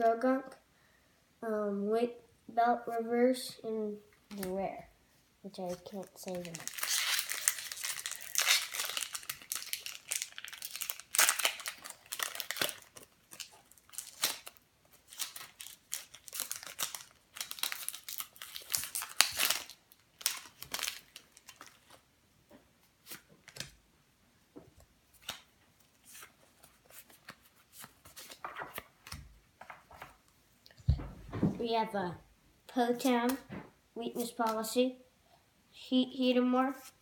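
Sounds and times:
foil wrapper tearing and crinkling: 5.9 - 22.0.

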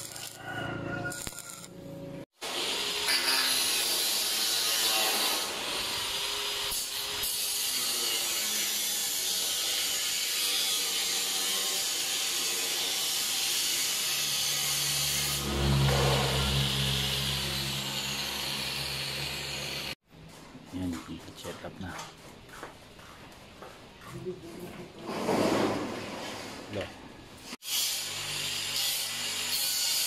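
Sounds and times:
angle grinder cutting sheet steel: 0.0 - 1.8, 2.4 - 20.0, 27.6 - 30.0
low hum: 15.0 - 20.0.

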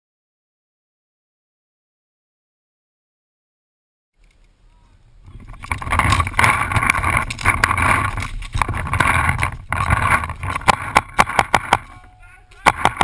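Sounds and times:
rustling and rattling movement noise: 5.2 - 13.0
sharp pops: 5.3 - 13.0.

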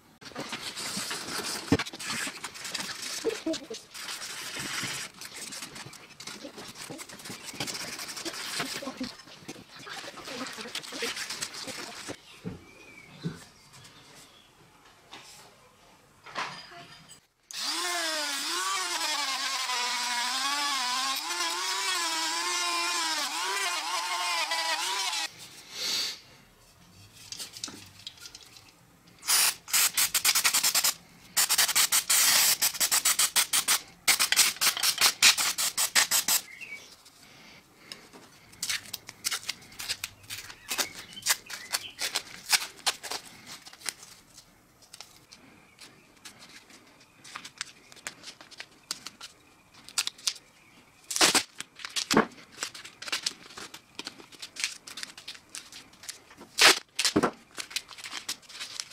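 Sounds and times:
abrasive paper rubbing steel: 0.6 - 9.2, 29.2 - 36.5
rotary tool motor whine: 17.5 - 25.3
aerosol spray can hissing: 29.2 - 36.4.

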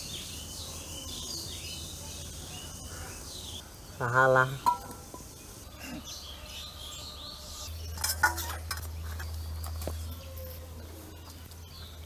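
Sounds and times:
birds chirping faintly: 0.0 - 12.0
metal utensils clinking in bowls: 7.9 - 9.8.

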